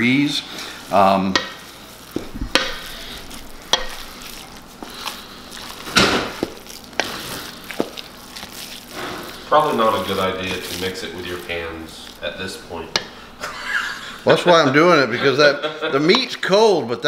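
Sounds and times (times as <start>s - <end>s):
squishing and scraping of mixture: 0.0s - 13.4s
spatula knocking on steel bowl: 2.4s - 2.8s.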